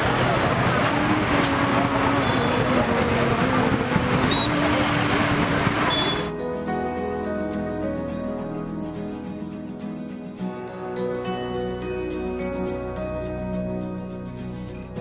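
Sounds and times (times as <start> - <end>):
crowd babble: 0.0 - 6.3
motorbike and car engines: 0.0 - 6.3.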